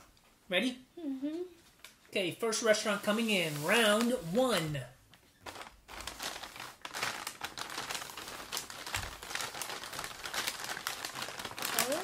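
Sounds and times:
paper bags crinkling: 2.6 - 12.0.

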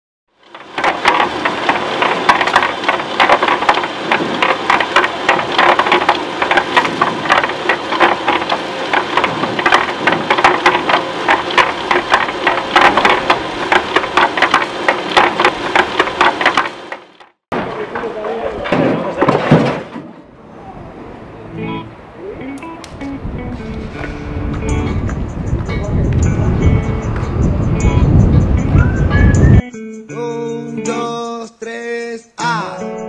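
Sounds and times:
machinery humming: 0.4 - 18.6, 20.2 - 29.6
irregular rattling and clattering: 0.4 - 20.2.

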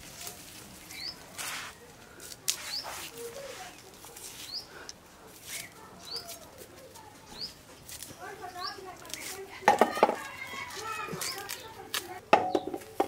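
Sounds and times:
dry onion skins crackling: 0.0 - 13.0
bird chirping: 0.9 - 1.2, 5.5 - 6.4, 7.2 - 8.9.

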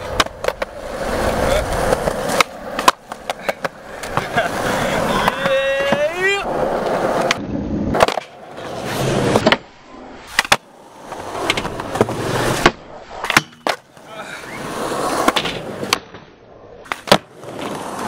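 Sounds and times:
skateboard pops and clacks: 0.0 - 0.8, 1.7 - 4.4, 5.2 - 6.2, 6.8 - 8.4, 9.3 - 9.7, 10.3 - 10.7, 11.4 - 14.0, 15.2 - 18.0
skateboard wheels rolling on concrete: 0.0 - 18.0.

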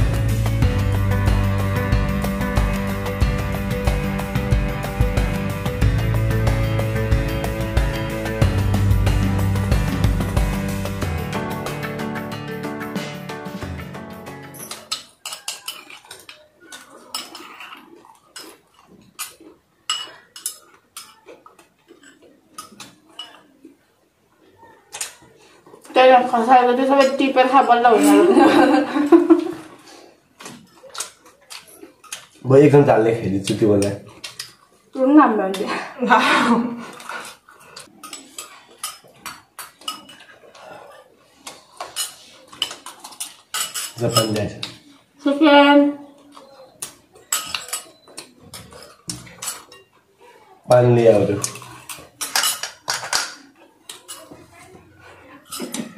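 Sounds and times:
spoons clinking on ceramic bowls: 14.4 - 18.6, 19.2 - 21.3, 21.9 - 23.5, 37.8 - 40.4, 41.7 - 44.8, 47.1 - 50.0, 51.0 - 54.4.

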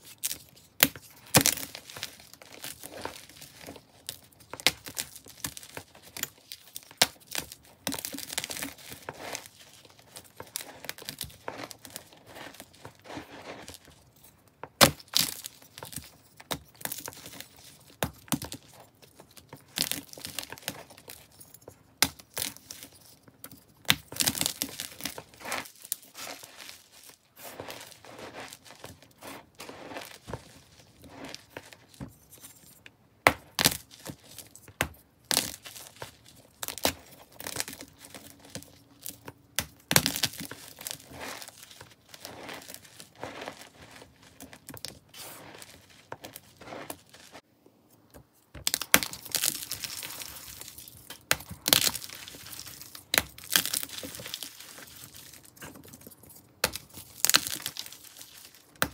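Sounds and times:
chalk cracking and crunching: 0.0 - 58.9
crumbly rustling: 0.1 - 32.8, 33.8 - 47.5.

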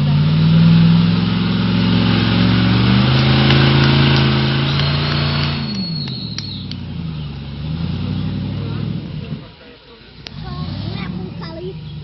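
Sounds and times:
engine revving under load: 0.0 - 12.0
thin high whistle: 4.6 - 6.8.

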